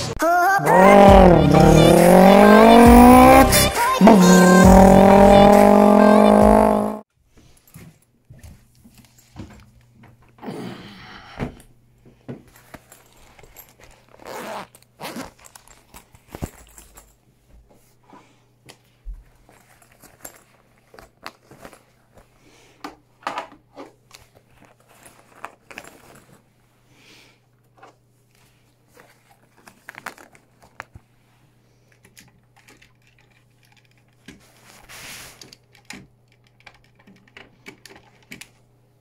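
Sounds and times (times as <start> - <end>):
song playing: 0.0 - 7.0.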